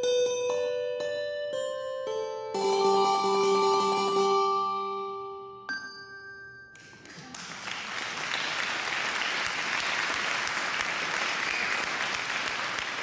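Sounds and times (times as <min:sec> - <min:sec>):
bell-like chime: 0:05.7 - 0:07.1
audience applause: 0:06.9 - 0:13.0.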